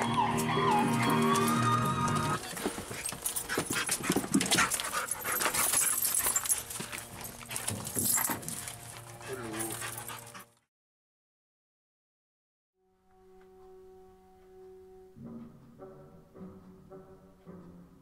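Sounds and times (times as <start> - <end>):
dog whimpering and panting: 0.0 - 10.6.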